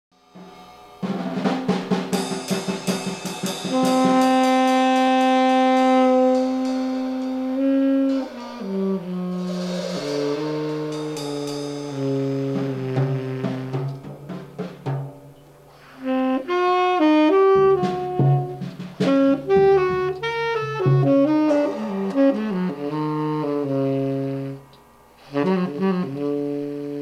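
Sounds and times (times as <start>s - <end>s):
drum kit and cymbals: 0.1s - 27.0s
saxophone sustained notes: 3.6s - 14.0s, 15.9s - 27.0s.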